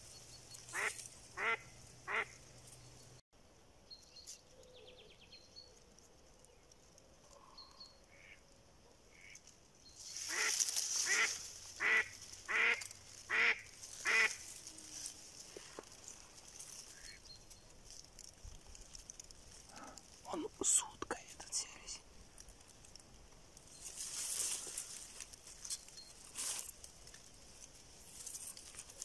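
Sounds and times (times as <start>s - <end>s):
duck quacking: 0.7s - 2.3s, 10.3s - 14.4s.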